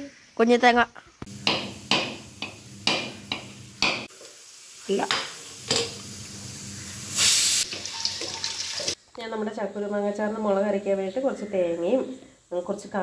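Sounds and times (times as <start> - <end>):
short hiss: 6.8 - 7.9.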